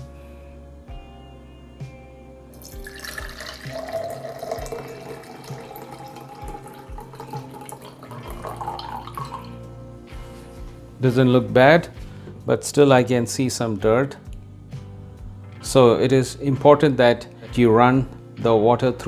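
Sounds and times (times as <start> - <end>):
water pouring into a glass: 2.6 - 9.6.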